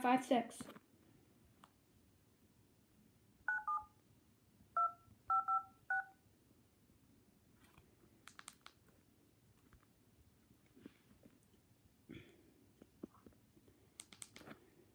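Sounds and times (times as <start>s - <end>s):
phone keypad touch tones: 3.5s - 3.9s, 4.8s - 6.2s.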